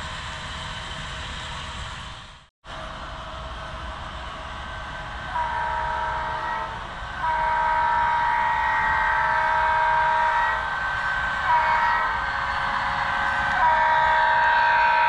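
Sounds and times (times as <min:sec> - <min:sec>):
multi-chime air horn blasts: 0:05.4 - 0:10.6, 0:13.6 - 0:15.0.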